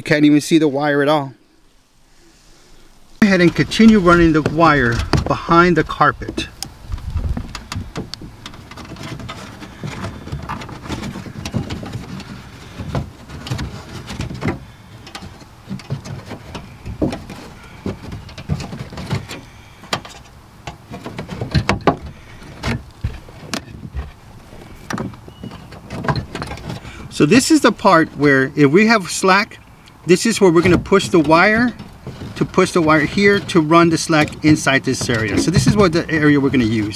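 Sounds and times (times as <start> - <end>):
small knocks and clicks: 6.3 - 27.0.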